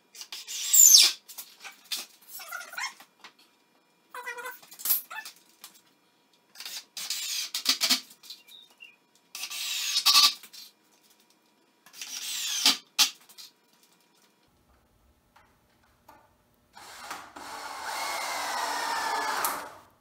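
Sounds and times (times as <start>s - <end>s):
cordless drill driving screws: 16.8s - 19.8s.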